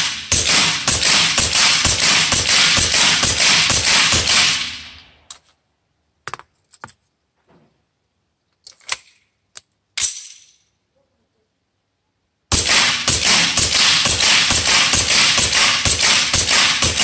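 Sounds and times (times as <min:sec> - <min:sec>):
pistol metallic clicks and clatters: 0:08.5 - 0:10.7.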